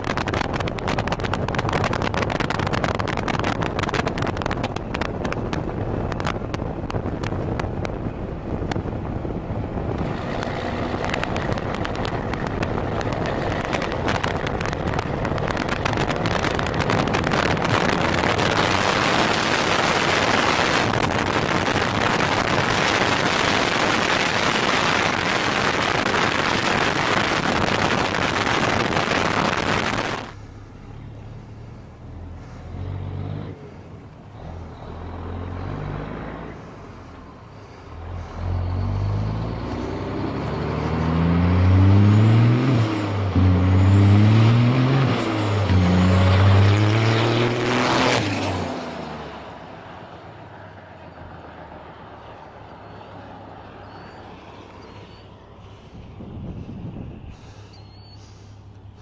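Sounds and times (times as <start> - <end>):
road noise: 0.0 - 59.0
truck diesel engine accelerating: 0.0 - 59.0
truck passing with a loud rush: 0.0 - 59.0
wind rushing: 55.7 - 57.7.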